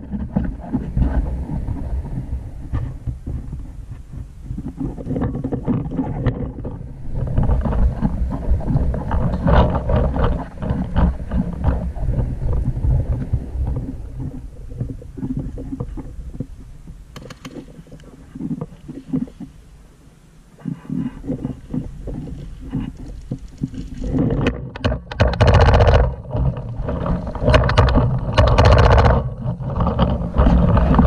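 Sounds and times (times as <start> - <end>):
wind buffeting: 0.0 - 19.8, 20.5 - 31.0
camera handling noise: 17.1 - 17.7.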